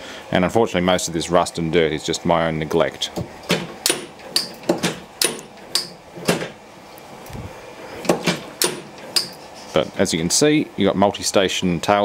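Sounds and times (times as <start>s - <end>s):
sharp metallic taps: 3.5s - 6.5s, 8.1s - 9.4s.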